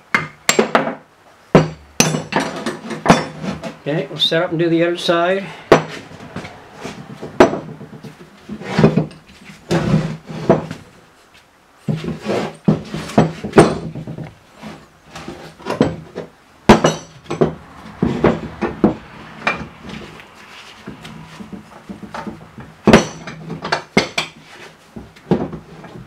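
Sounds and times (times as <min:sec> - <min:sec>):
metal tools clanking on wood: 0:01.7 - 0:03.8, 0:05.6 - 0:10.7, 0:15.1 - 0:20.2, 0:20.8 - 0:24.5.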